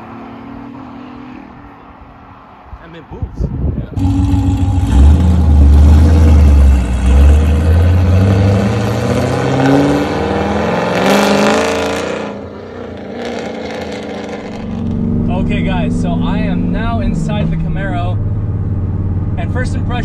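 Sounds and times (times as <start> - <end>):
car engine accelerating hard: 3.9 - 20.0.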